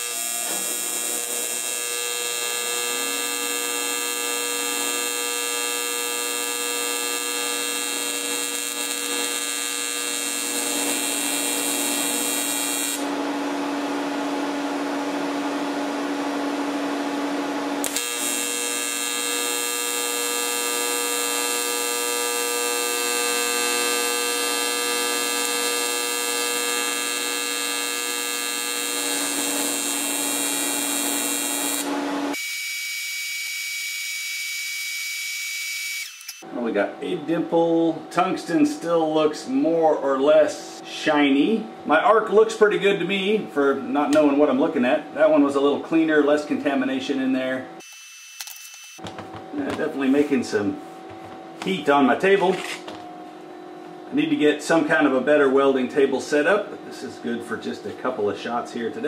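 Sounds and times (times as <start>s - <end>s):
welding arc humming: 0.0s - 13.3s, 17.8s - 36.4s.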